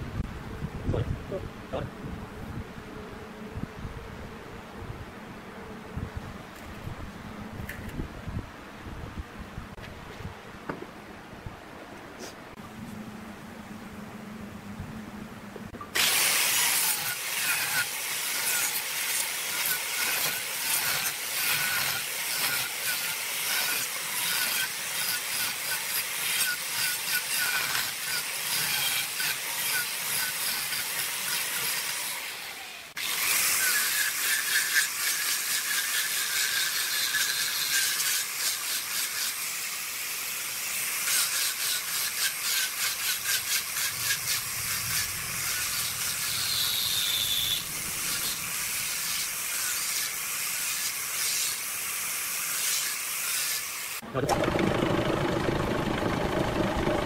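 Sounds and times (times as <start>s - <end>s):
angle grinder sanding wood: 16.0s - 57.0s.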